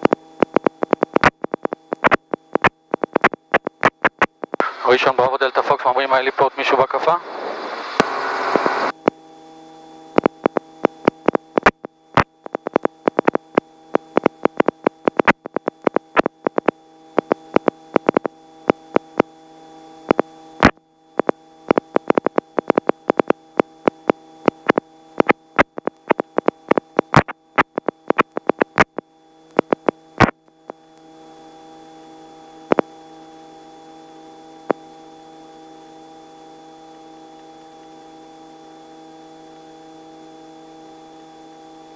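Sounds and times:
sharp crackling clicks: 0:00.0 - 0:04.7, 0:10.2 - 0:19.3, 0:20.1 - 0:30.8
electrical hum: 0:00.0 - 0:41.9.

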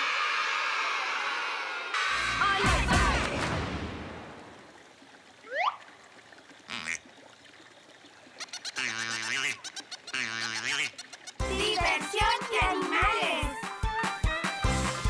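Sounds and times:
duck-like cartoon voices: 0:08.8 - 0:13.6.

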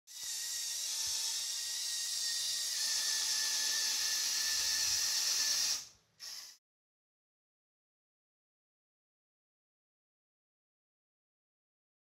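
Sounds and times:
electric motors and gears whirring: 0:00.1 - 0:06.6.

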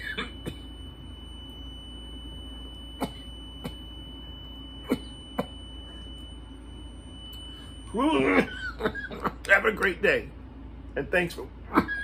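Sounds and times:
person coughing: 0:00.0 - 0:00.8, 0:03.0 - 0:03.8, 0:04.8 - 0:05.5.

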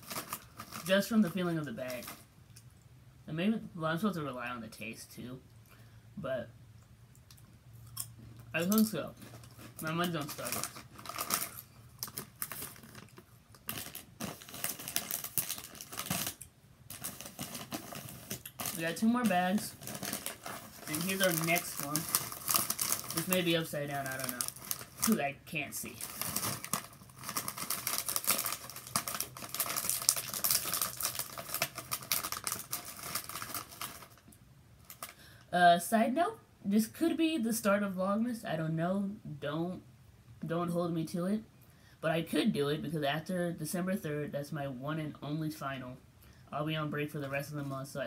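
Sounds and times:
plastic bag crinkling: 0:00.0 - 0:02.3, 0:08.6 - 0:35.2.

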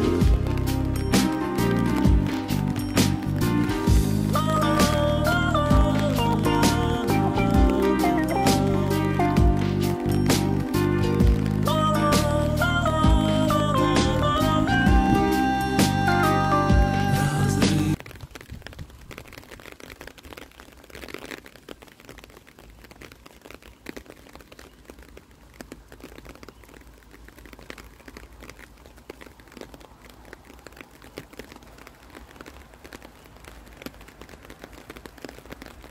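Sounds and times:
light rain drops ticking: 0:00.0 - 0:35.9.

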